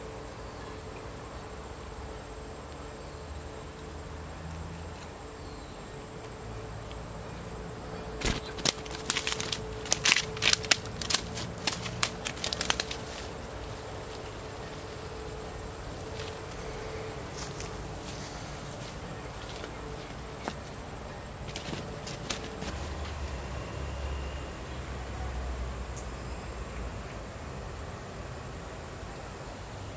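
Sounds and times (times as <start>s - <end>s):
insect drone: 0.0s - 29.9s
sharp crackling and rustling: 8.1s - 23.4s.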